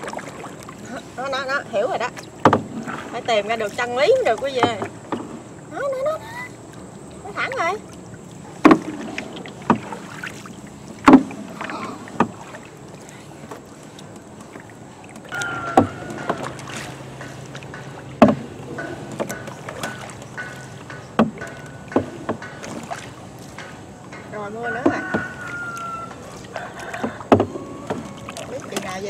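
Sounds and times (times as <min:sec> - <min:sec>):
paddles stroking water: 0:00.0 - 0:29.0
sharp knocks: 0:02.4 - 0:02.9, 0:08.6 - 0:10.0, 0:11.0 - 0:11.5, 0:15.4 - 0:25.4, 0:26.9 - 0:28.1.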